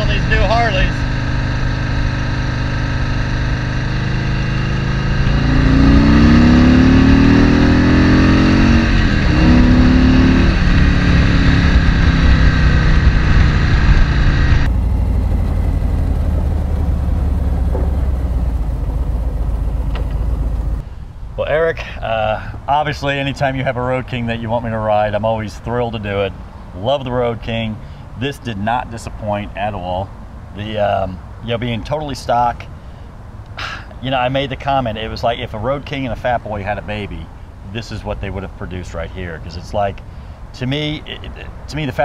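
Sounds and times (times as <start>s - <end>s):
motorcycle engine accelerating: 0.0s - 20.8s.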